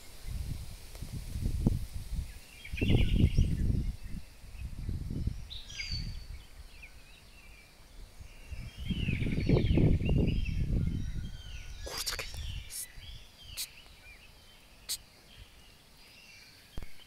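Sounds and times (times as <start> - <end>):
wind buffeting microphone: 0.0 - 7.1, 7.9 - 13.6
birds chirping: 2.2 - 17.0.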